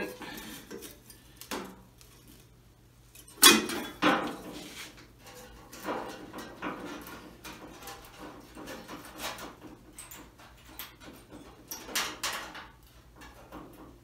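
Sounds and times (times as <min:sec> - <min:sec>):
metal knocks and clatter: 0:03.2 - 0:14.0.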